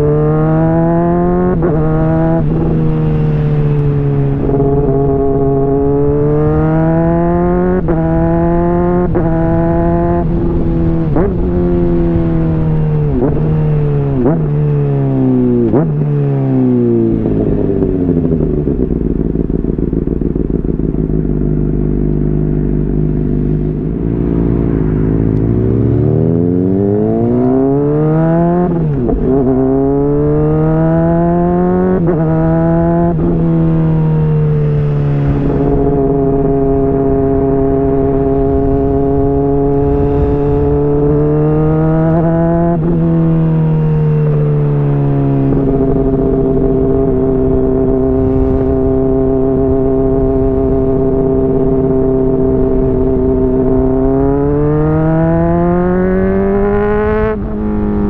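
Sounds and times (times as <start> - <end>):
motorcycle engine accelerating: 0.0 - 58.0
throttle blips on downshifts: 0.0 - 58.0.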